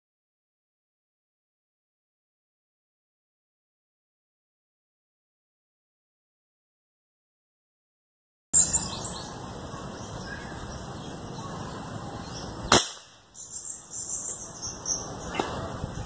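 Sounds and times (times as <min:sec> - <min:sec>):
outdoor background noise: 0:08.6 - 0:16.0
air rifle shot: 0:12.7 - 0:13.2.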